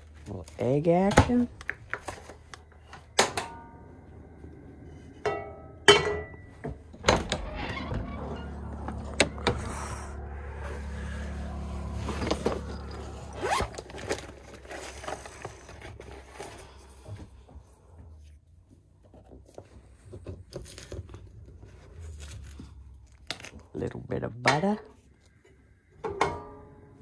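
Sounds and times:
steady low hum: 0.0s - 18.7s.

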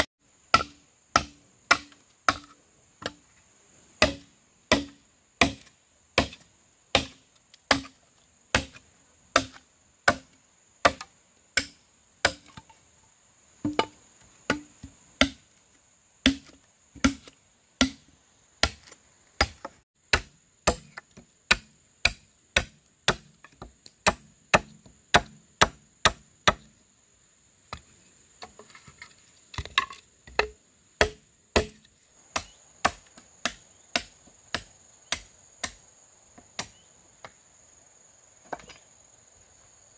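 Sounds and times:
machete chopping bamboo: 0.0s - 3.2s, 4.0s - 12.7s, 13.6s - 15.5s, 16.2s - 26.7s, 29.6s - 35.8s, 36.6s - 36.9s.

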